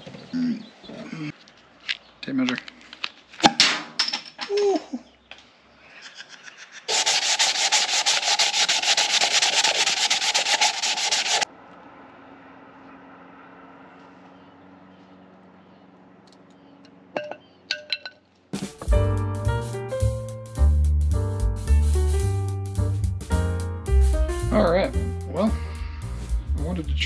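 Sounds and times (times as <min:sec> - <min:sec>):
power tool rasping against wood: 0:06.9 - 0:11.5.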